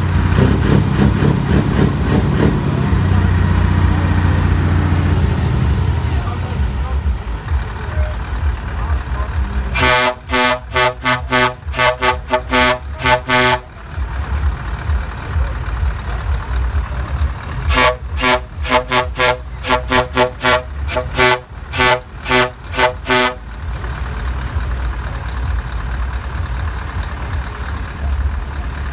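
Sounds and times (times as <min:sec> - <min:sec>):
low steady rumble: 0:00.0 - 0:28.9
truck air horn short toots: 0:09.7 - 0:13.7, 0:17.7 - 0:23.4.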